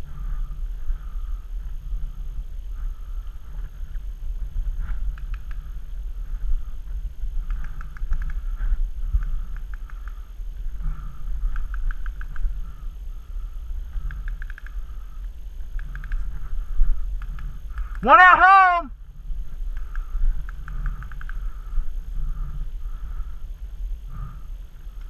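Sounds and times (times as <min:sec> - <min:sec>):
wind rumble: 0:00.0 - 0:25.0
camera handling noise: 0:07.4 - 0:08.4, 0:11.5 - 0:12.6, 0:14.0 - 0:14.8, 0:15.7 - 0:16.4, 0:19.7 - 0:21.4
paintball markers firing: 0:07.4 - 0:08.4, 0:11.5 - 0:12.5, 0:15.8 - 0:16.3, 0:17.1 - 0:18.1, 0:19.7 - 0:21.4.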